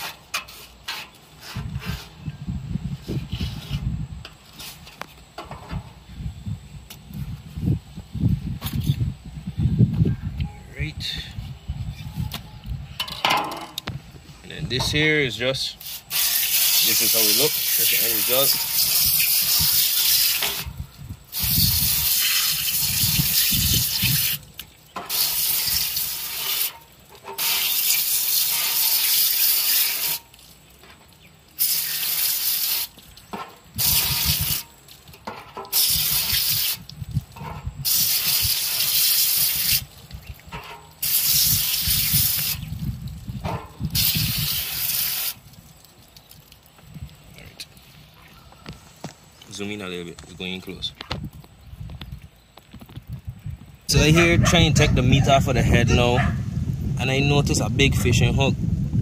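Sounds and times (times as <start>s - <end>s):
hose nozzle spraying water: 15.6s - 47.8s.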